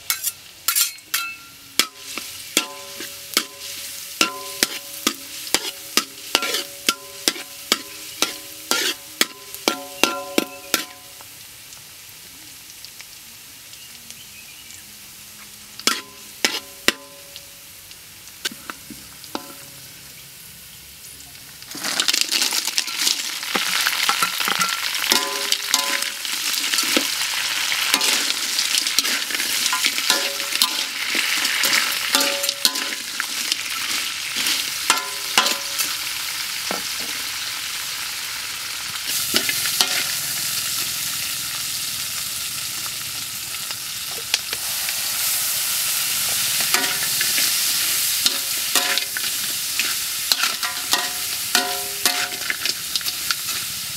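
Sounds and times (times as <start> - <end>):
metal spatula scraping wok: 0.0 - 11.1, 15.9 - 17.2, 22.8 - 36.0, 39.1 - 41.0, 44.5 - 53.8
crabs sizzling in hot oil: 0.0 - 53.9.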